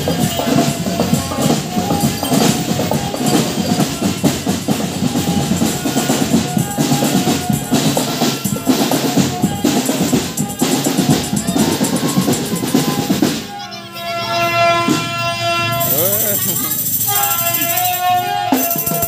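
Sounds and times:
marching drum band: 0.0 - 13.6, 14.8 - 19.0.

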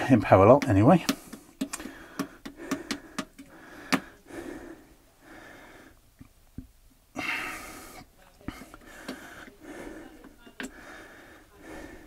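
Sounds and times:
dull taps: 0.5 - 4.1
soft breathing: 1.0 - 6.1, 7.1 - 12.0.

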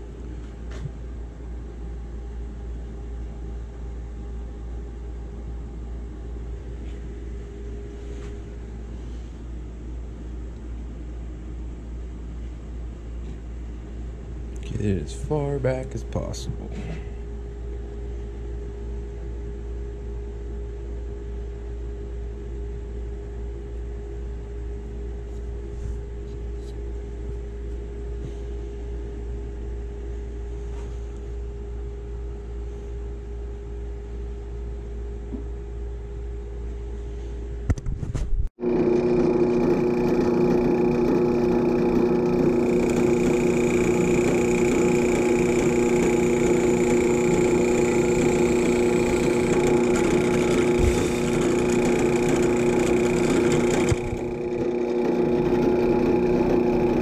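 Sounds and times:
low machine hum: 0.0 - 57.0
drill press boring into wood: 38.6 - 57.0.

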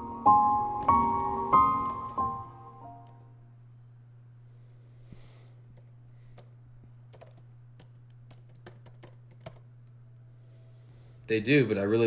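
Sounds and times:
steady low hum: 0.0 - 12.0
typing on laptop keyboard: 0.8 - 2.3, 5.7 - 6.5, 7.1 - 10.0.

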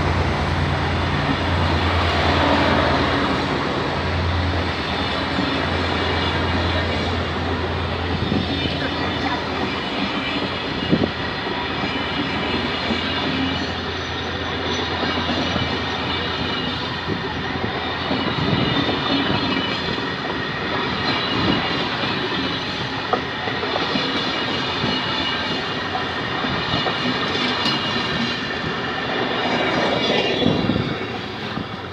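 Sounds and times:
train wheels rumbling on rails: 0.0 - 31.9
clacking over rail joints: 18.0 - 28.5.

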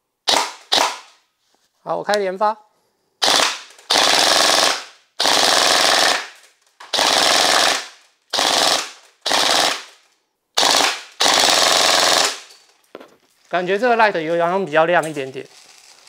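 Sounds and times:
airsoft gun firing bursts: 0.3 - 1.2, 3.2 - 10.0, 10.6 - 12.5.

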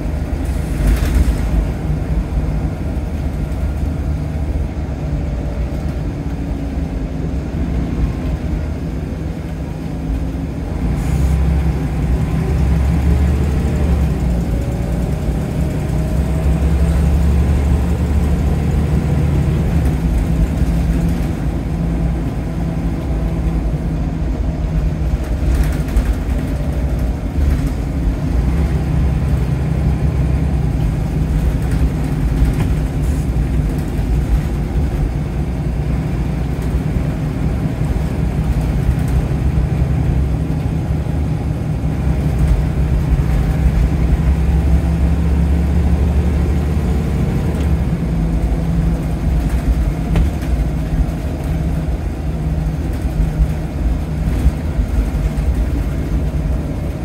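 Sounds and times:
bus diesel engine droning: 0.0 - 57.0.

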